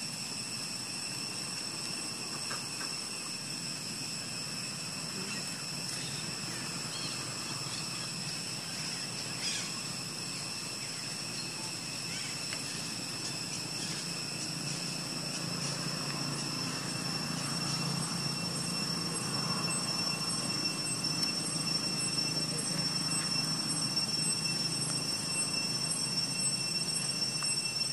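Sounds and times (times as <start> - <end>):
high-pitched drone: 1.8 - 27.9
low engine-like rumble: 11.6 - 26.3.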